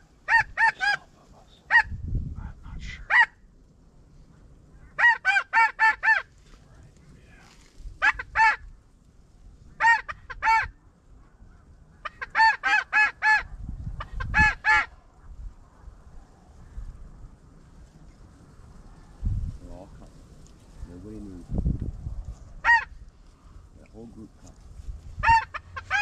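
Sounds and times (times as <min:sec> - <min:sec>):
snow goose honks: 0:00.0 - 0:01.9, 0:02.9 - 0:03.4, 0:04.8 - 0:06.3, 0:08.0 - 0:08.7, 0:09.8 - 0:10.8, 0:11.5 - 0:15.0, 0:22.6 - 0:23.0, 0:25.2 - 0:26.0.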